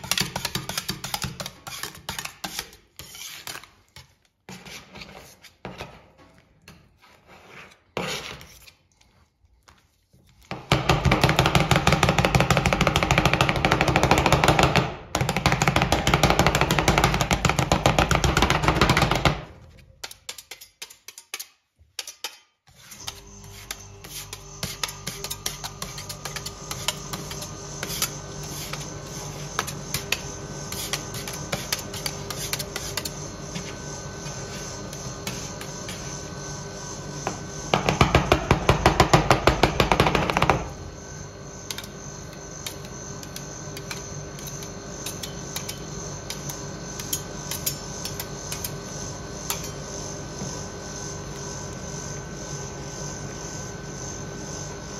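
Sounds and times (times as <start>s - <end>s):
fast chopping on metal plate: 0.0s - 3.6s, 10.5s - 22.4s, 23.1s - 33.7s, 37.7s - 40.7s
spatulas scraping metal plate: 0.0s - 8.8s, 18.0s - 36.2s
machine hum: 22.9s - 54.9s.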